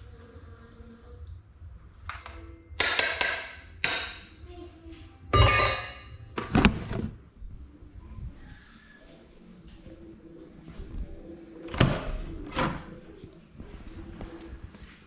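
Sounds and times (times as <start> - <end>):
dishes and utensils clattering: 5.3 - 7.1.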